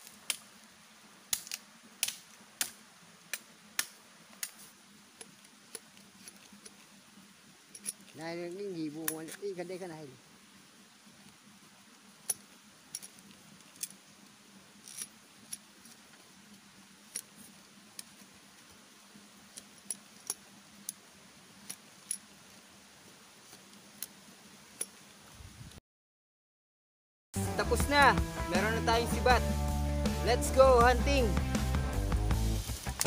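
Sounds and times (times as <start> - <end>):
knife cutting bamboo: 1.3 - 4.6.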